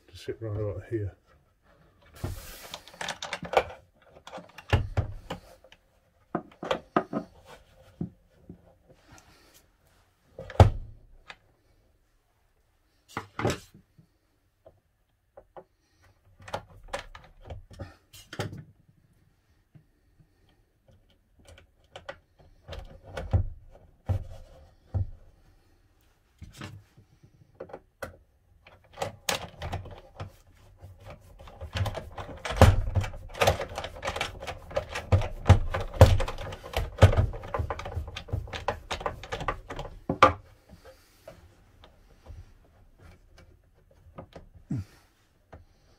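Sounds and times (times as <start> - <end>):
metal fittings clicking and knocking: 31.0 - 40.4.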